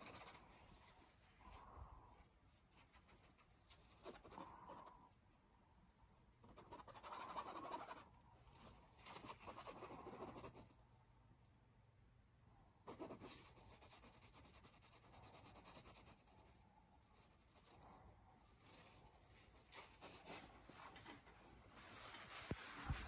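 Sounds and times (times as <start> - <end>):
faint rustling and scratching: 0.0 - 5.5, 6.4 - 10.8, 12.9 - 23.0.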